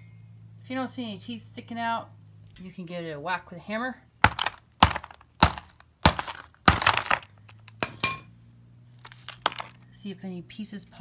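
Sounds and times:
rock crumbling: 0:04.2 - 0:08.0, 0:09.0 - 0:09.8
hammer striking rock: 0:04.2 - 0:08.1
metallic ring: 0:07.8 - 0:08.3.

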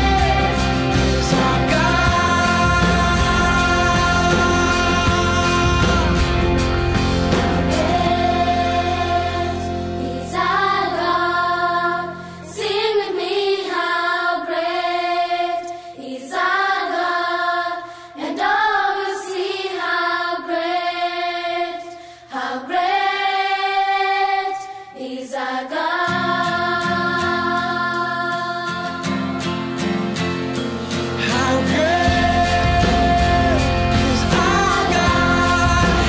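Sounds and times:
low musical accompaniment: 0:00.0 - 0:12.6, 0:29.2 - 0:36.0
voices singing long phrases: 0:00.0 - 0:29.6, 0:31.2 - 0:36.0.

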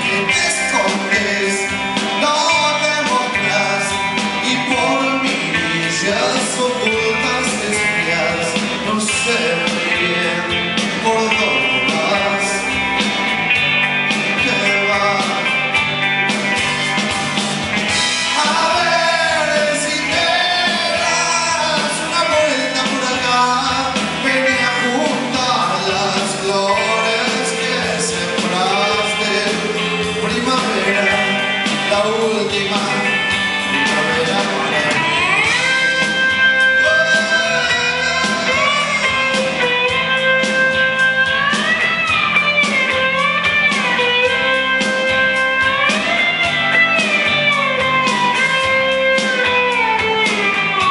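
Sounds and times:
man singing: 0:00.0 - 0:13.0, 0:14.2 - 0:15.8, 0:18.2 - 0:40.9
drums: 0:00.0 - 0:50.9
electric guitars: 0:00.0 - 0:50.9
lead guitar with bent notes: 0:00.0 - 0:50.9.

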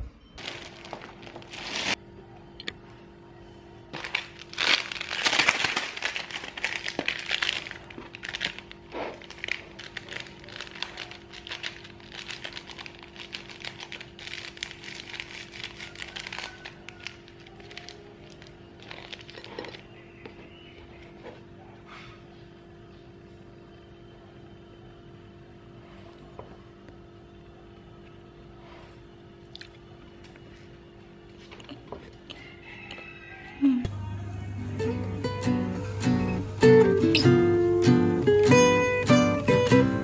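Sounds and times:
steady low hum: 0:00.0 - 0:32.6, 0:33.5 - 0:40.0
plastic sachet crinkling: 0:00.4 - 0:02.0, 0:03.9 - 0:21.4
powder rustling and scraping on bread: 0:04.0 - 0:21.4.

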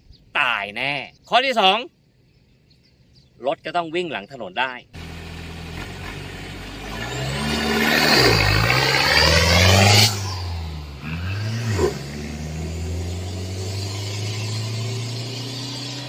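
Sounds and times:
truck engine revving: 0:05.0 - 0:16.0.

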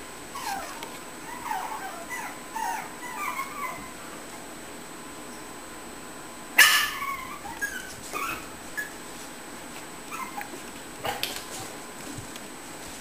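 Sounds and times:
puppies yipping and whimpering: 0:00.3 - 0:04.0, 0:06.6 - 0:09.1, 0:10.1 - 0:10.6.

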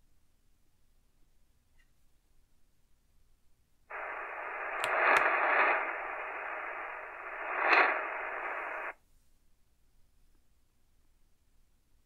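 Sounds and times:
radio crackles: 0:03.9 - 0:09.0
shortwave radio static hiss: 0:03.9 - 0:09.0.

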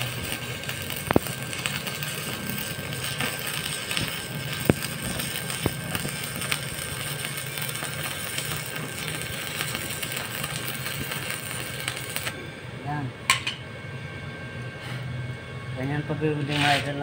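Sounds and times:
welding arc crackling and hissing: 0:00.0 - 0:12.4, 0:15.9 - 0:17.0
steady low hum: 0:00.0 - 0:17.0.

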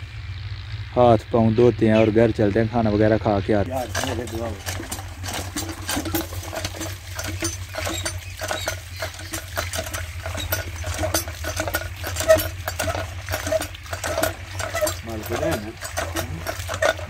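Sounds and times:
hand pump metal clanks: 0:03.6 - 0:17.0
hand pump squeaks: 0:03.7 - 0:17.0.

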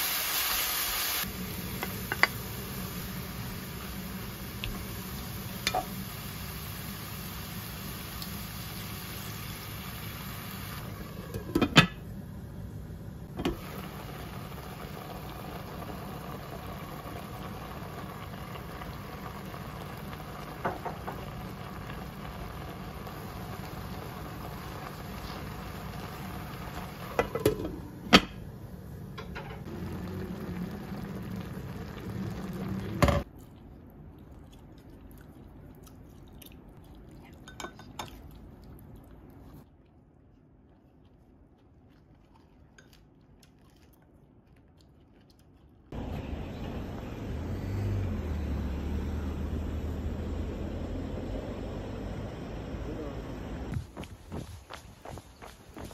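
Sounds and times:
food sizzling in a pot: 0:00.0 - 0:12.1, 0:13.4 - 0:28.1, 0:29.3 - 0:33.3.

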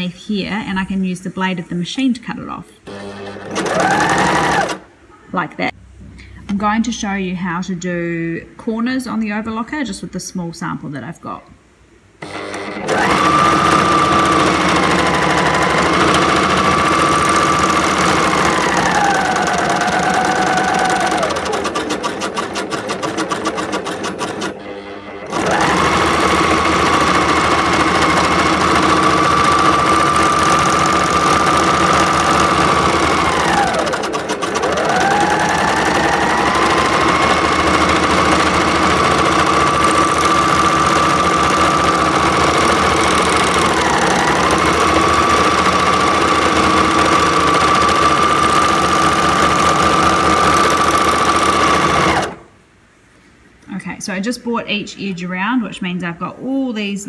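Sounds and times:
rapid clicking stitches: 0:02.9 - 0:04.8, 0:12.2 - 0:52.4
overlocker motor whine: 0:24.6 - 0:50.5.

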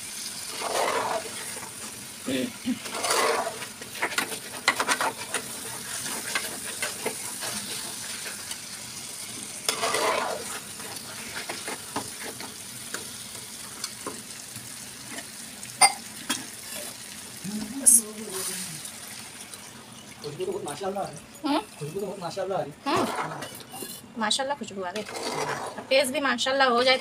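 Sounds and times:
food sizzling in a pot: 0:00.0 - 0:26.9
metal spatula scraping pot: 0:00.5 - 0:02.0, 0:02.7 - 0:08.6, 0:09.6 - 0:12.6, 0:22.9 - 0:26.1.

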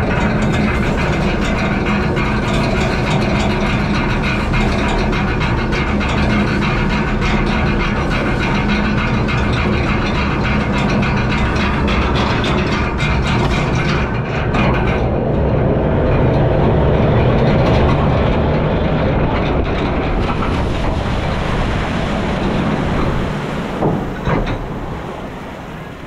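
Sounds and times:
boat splashing down: 0:00.0 - 0:26.0
ride boat rattling: 0:00.0 - 0:26.0
sharp knocks: 0:00.0 - 0:26.0
rush of water and spray: 0:17.2 - 0:26.0.

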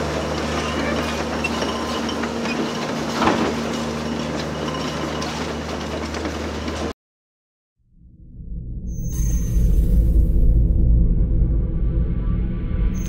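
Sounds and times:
diesel engine running: 0:00.0 - 0:06.9.

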